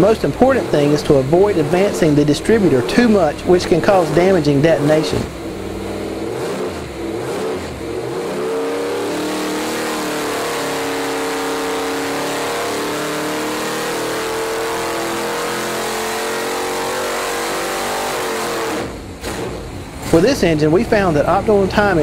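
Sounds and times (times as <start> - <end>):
engine revving: 0.0 - 22.0.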